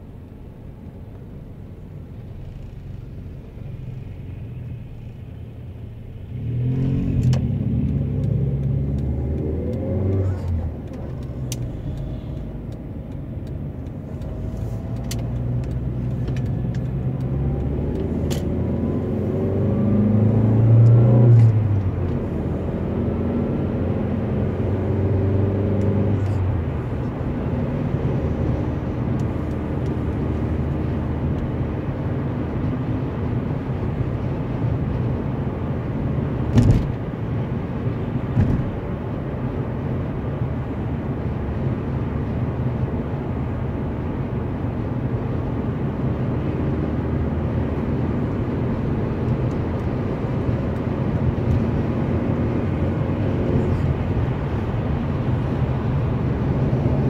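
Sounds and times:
car road and engine noise: 0.0 - 57.0.

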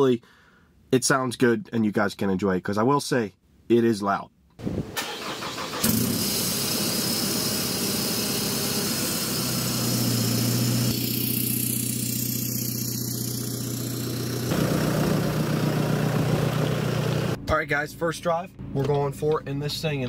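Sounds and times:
diesel engine idling: 11.8 - 17.4.

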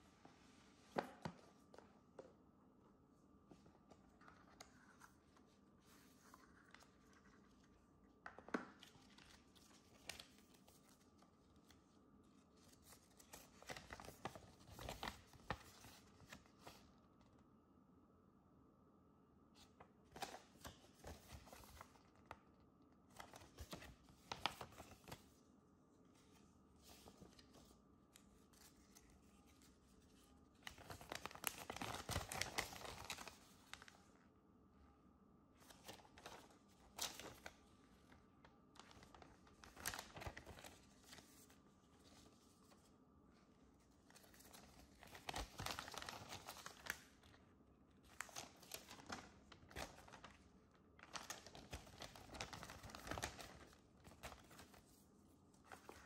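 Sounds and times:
paper rustling: 3.5 - 16.9, 19.6 - 22.4, 23.1 - 25.4, 26.1 - 34.1, 35.6 - 42.9, 43.8 - 47.4, 48.0 - 56.0.

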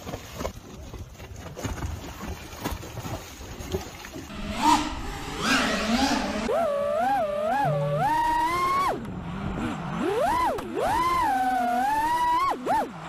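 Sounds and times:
wind: 0.0 - 13.0
sea noise: 4.1 - 13.0
drone motors whining: 4.3 - 13.0.

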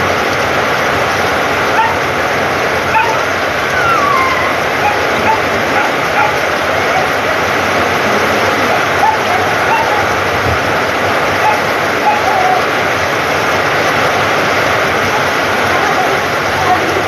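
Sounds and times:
heavy rain on ground: 0.0 - 17.0
rain on a metal roof: 0.0 - 17.0
short high-pitched cries: 3.7 - 5.0.

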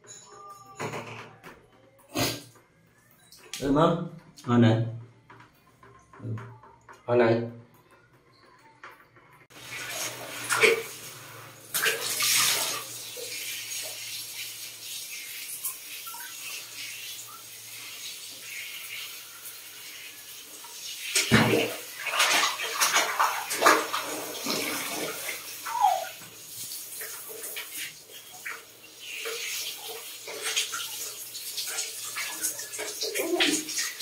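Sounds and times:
shower head spraying water: 9.5 - 34.0
water splashing: 9.5 - 34.0.

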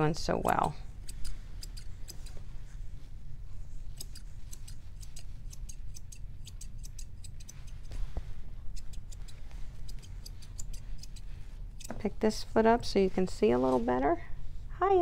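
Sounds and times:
steady low hum: 0.0 - 15.0
grooming shears snipping: 0.3 - 2.5, 3.8 - 8.1, 8.7 - 12.1.

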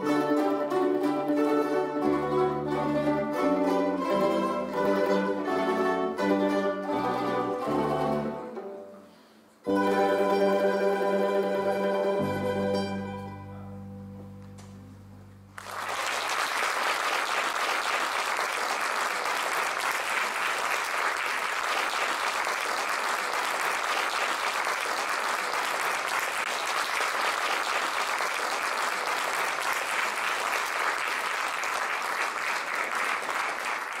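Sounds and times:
mandolins and guitars chord: 0.0 - 15.6
audience applause: 15.5 - 34.0.

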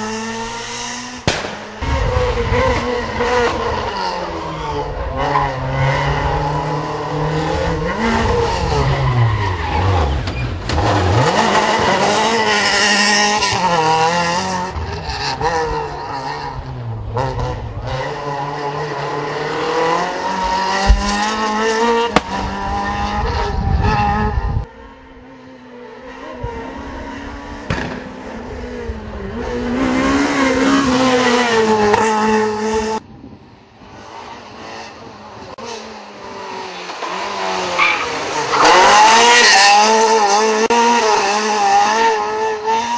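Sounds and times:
rally car engine revving past: 35.6 - 42.9.

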